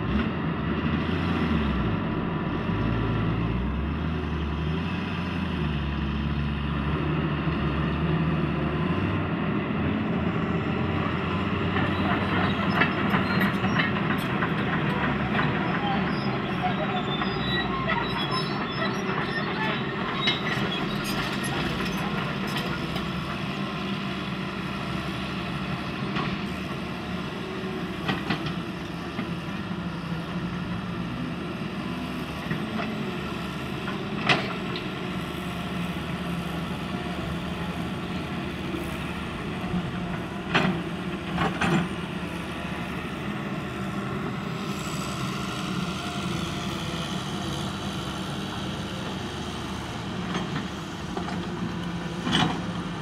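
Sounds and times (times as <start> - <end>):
excavator diesel engine running: 0.0 - 53.0.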